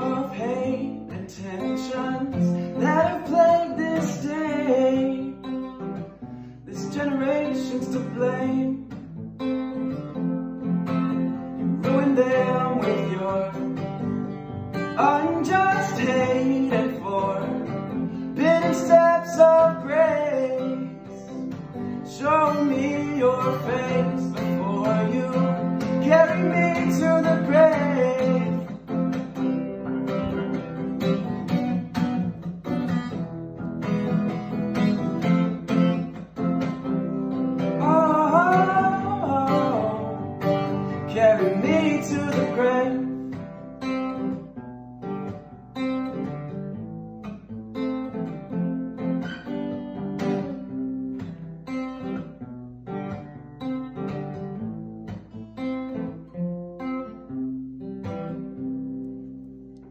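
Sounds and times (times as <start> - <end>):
man singing: 0.0 - 5.8, 6.6 - 9.1, 11.6 - 14.2, 14.8 - 29.1, 37.6 - 43.5
acoustic guitar strumming: 0.0 - 59.9.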